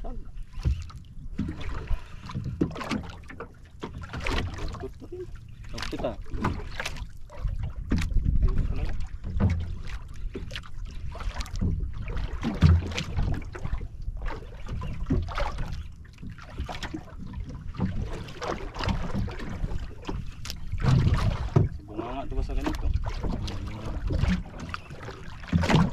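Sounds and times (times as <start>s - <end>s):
water splashing against boat hull: 0.0s - 25.9s
wind on microphone: 7.3s - 9.8s.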